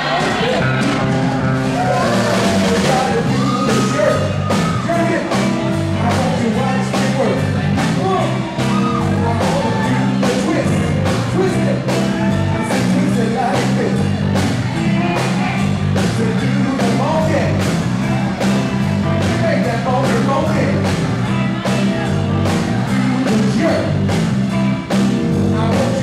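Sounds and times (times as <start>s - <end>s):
live soul band playing: 0.0s - 26.0s
man shouting lines: 1.8s - 7.2s
man singing lead vocals: 1.8s - 14.2s, 16.0s - 17.7s, 19.2s - 24.2s, 25.3s - 26.0s.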